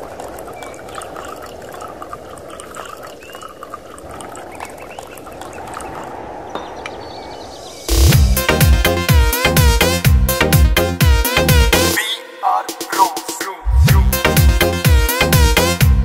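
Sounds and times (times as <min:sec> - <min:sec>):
chorus of chirps and croaks: 0:00.0 - 0:08.1.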